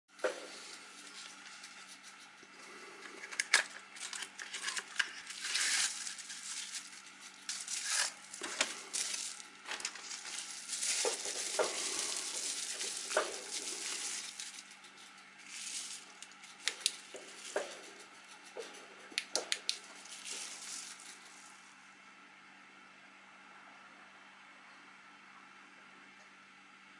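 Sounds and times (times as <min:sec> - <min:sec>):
bubble wrap crinkling: 0:00.3 - 0:21.6.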